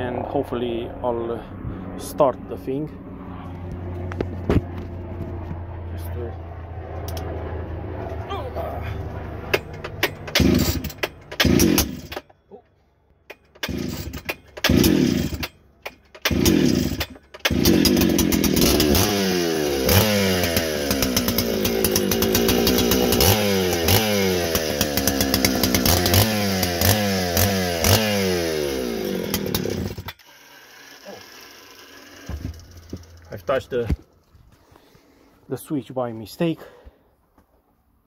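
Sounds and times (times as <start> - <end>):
chainsaw starting and revving: 9.6 - 12.3, 13.5 - 15.6, 16.2 - 33.4.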